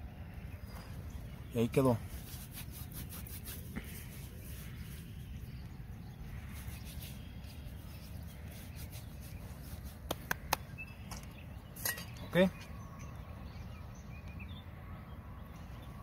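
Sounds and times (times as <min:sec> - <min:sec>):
hands clapping together: 0:10.0 - 0:10.7.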